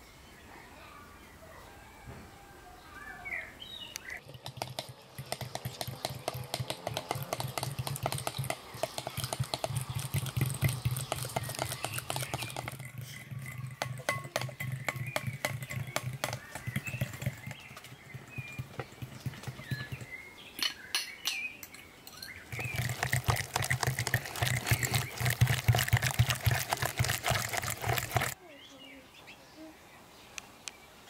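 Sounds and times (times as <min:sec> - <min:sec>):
utensil beating eggs in glass bowl: 0:04.2 - 0:20.2, 0:22.5 - 0:28.4
bird chirping: 0:06.9 - 0:31.0.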